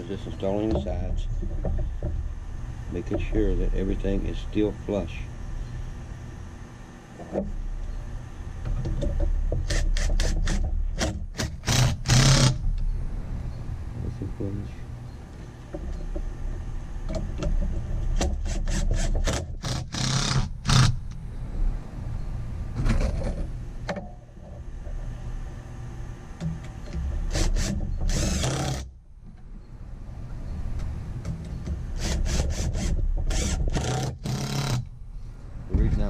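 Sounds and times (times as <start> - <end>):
impact driver driving screws: 9.7 - 12.6, 27.3 - 28.8, 32.0 - 34.8.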